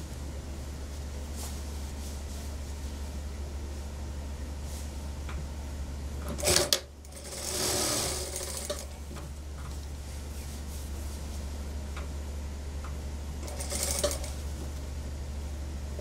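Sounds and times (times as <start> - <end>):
sewing machine stitching: 6.3 - 8.9, 13.4 - 14.3.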